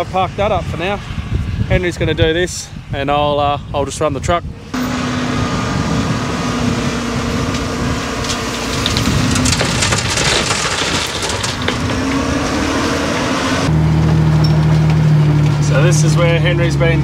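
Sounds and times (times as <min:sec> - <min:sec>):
diesel engine running: 0:04.5 - 0:17.0
rocks clattering into truck bin: 0:08.2 - 0:12.9.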